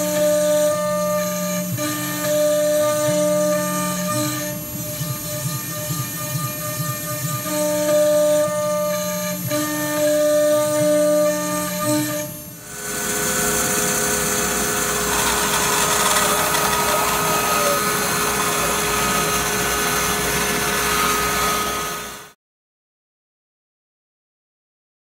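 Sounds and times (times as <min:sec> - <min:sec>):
router spindle whine: 0:00.0 - 0:22.3
band saw cutting wood: 0:12.6 - 0:22.3.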